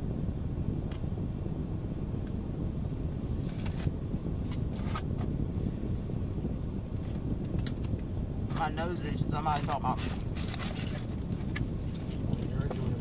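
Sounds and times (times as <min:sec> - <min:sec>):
car road and engine noise: 0:00.0 - 0:13.0
light clicks and rustles: 0:09.5 - 0:13.0.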